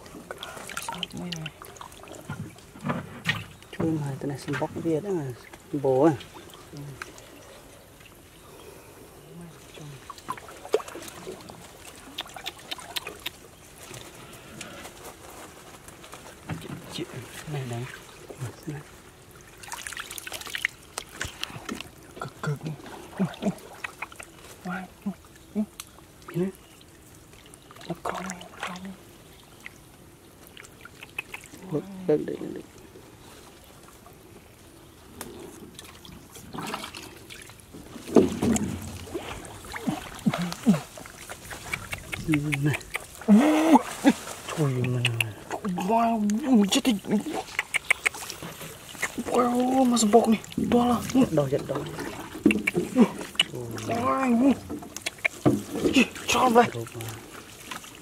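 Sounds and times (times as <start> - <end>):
water splashing and trickling: 0.0 - 58.0
hands splashing in muddy water: 9.9 - 14.1.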